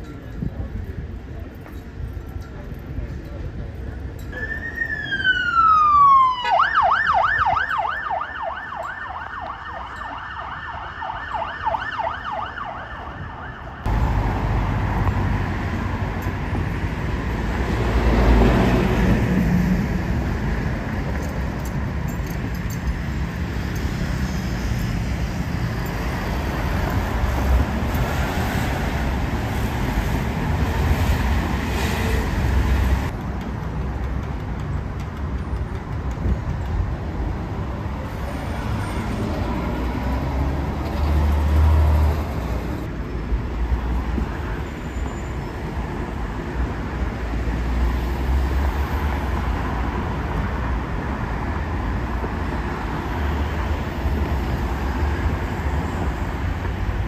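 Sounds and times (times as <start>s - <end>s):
road traffic: 0.0s - 57.0s
emergency siren wailing and yelping: 4.4s - 13.9s.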